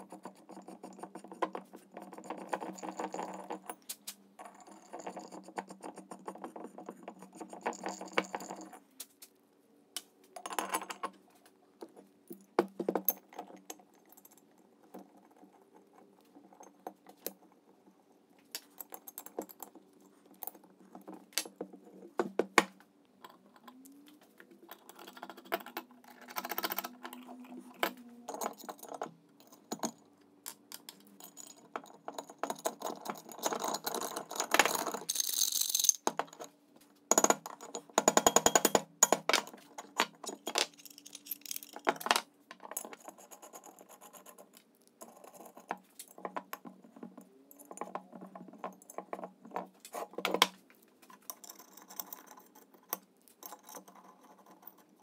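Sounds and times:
metal parts clinking: 40.3s - 42.1s.

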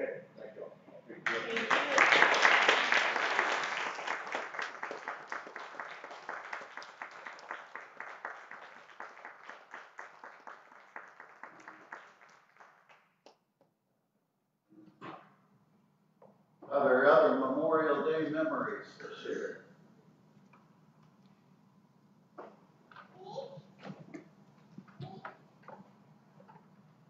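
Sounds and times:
people applauding: 1.2s - 13.3s.

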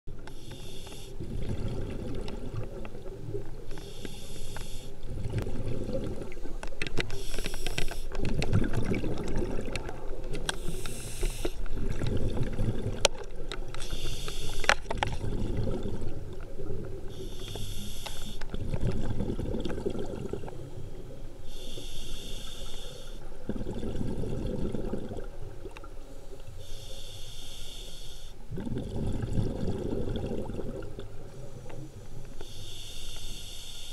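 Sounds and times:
regulator hissing inhalation: 0.3s - 1.2s, 3.8s - 5.0s, 7.2s - 8.1s, 10.6s - 11.6s, 13.8s - 14.7s, 17.2s - 18.4s, 21.5s - 23.2s, 26.6s - 28.4s, 32.4s - 33.9s
bubbling exhaled air: 1.2s - 6.5s, 7.2s - 13.1s, 13.9s - 25.7s, 28.5s - 31.6s.

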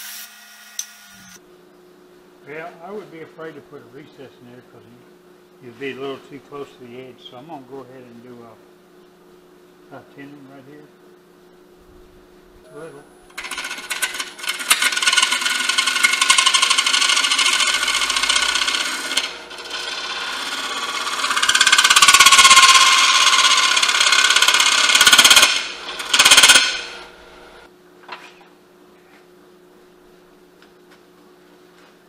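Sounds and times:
lathe motor humming: 12.4s - 27.7s
lathe tool scraping wood: 13.3s - 27.6s.

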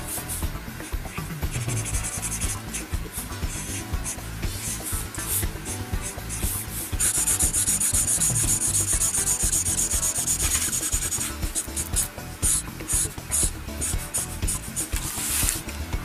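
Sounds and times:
drawing tool scratching on paper: 7.0s - 13.4s.

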